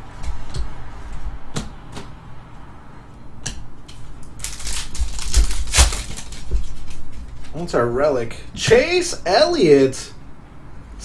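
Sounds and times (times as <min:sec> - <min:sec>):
trading cards being flipped: 0:04.2 - 0:07.4.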